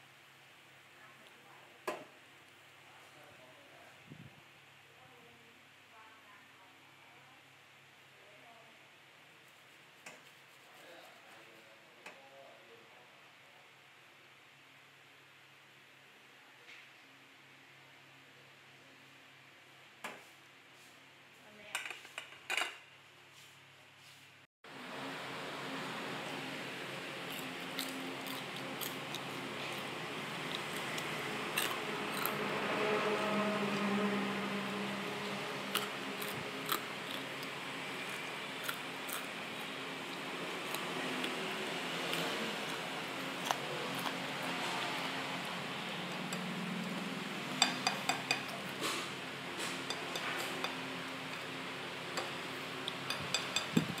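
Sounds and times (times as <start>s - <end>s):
steady background hum: 24.7s - 54.0s.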